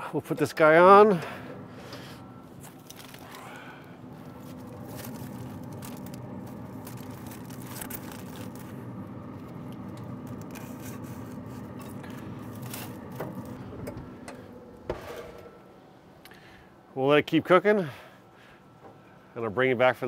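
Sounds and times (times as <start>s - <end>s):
steady low hum: 0.0s - 20.0s
aluminium foil crinkling: 1.9s - 13.7s.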